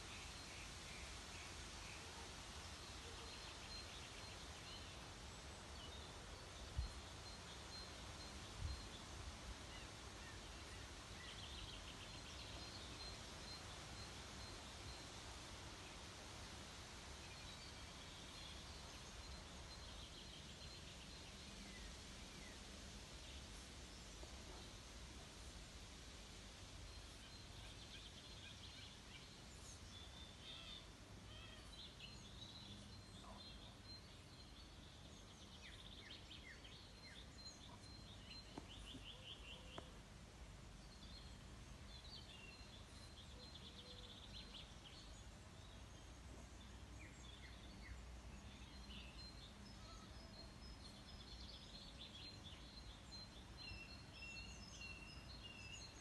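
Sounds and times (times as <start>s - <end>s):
faint bird chirps: 26.9s - 40.0s, 40.8s - 56.0s.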